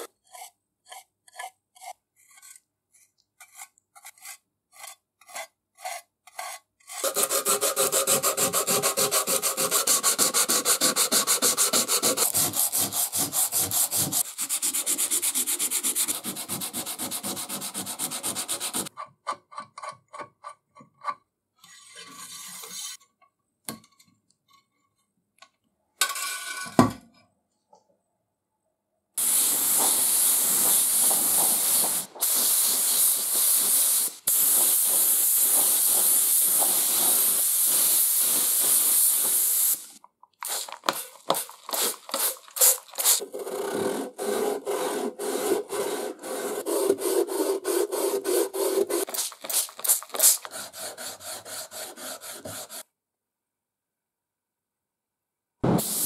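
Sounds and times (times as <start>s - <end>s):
sanding sponge rubbing: 0.0s - 18.9s, 29.2s - 39.8s, 41.3s - 52.8s
wet sanding strokes: 0.0s - 18.9s, 40.6s - 52.8s
spray gun hissing: 29.2s - 40.8s, 49.1s - 50.4s, 55.7s - 56.0s
thump: 55.6s - 56.0s.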